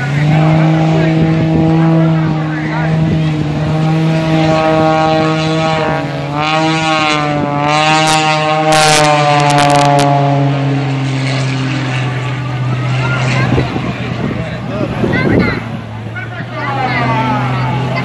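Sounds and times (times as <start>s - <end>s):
propeller plane flying past: 5.6s - 18.0s.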